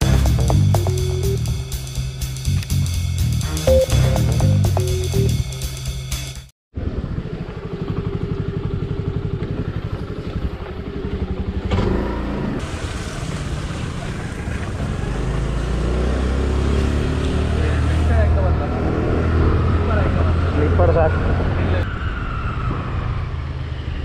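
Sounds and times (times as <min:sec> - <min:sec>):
wind and road noise: 0:06.7 - 0:24.0
scooter engine running: 0:06.8 - 0:15.7.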